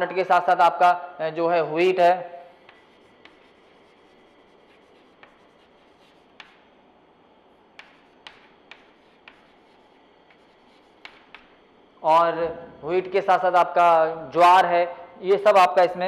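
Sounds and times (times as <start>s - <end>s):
chalk scratching on chalkboard: 2.6s - 6.8s, 7.8s - 11.7s
chalk tapping on board: 2.6s - 6.8s, 7.7s - 11.7s.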